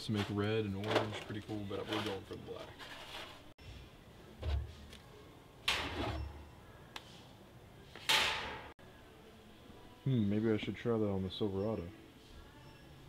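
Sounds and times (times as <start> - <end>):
metal cans clunking and clattering: 0.0 - 2.8.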